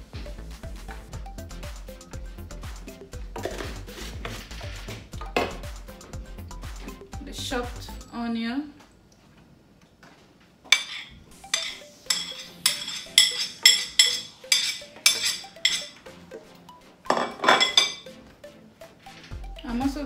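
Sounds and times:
knife clinking on a plate: 10.8 - 16.0, 17.1 - 18.1.

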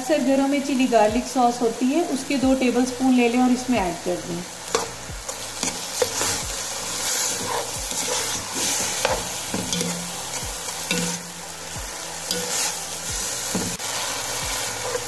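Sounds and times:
food sizzling in a pan: 0.0 - 15.0
spoon scraping a pan: 4.6 - 11.5, 12.2 - 15.0.

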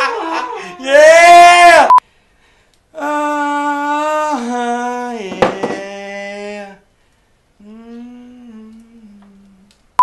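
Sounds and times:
wordless vocal howl: 0.3 - 1.9, 3.0 - 6.8.

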